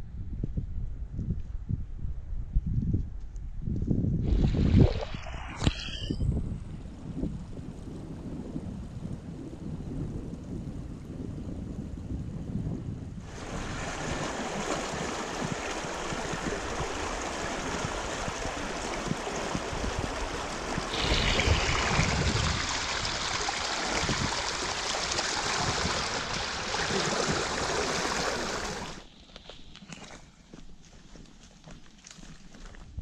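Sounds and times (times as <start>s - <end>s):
wind rumble on microphone: 0.0s - 29.1s
stream rushing over rocks: 13.3s - 29.1s.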